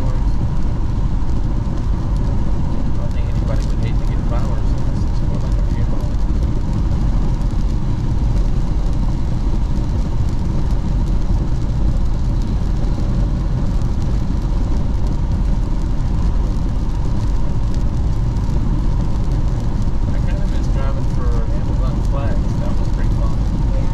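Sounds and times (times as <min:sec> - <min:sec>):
car driving on wet road: 0:00.0 - 0:23.9.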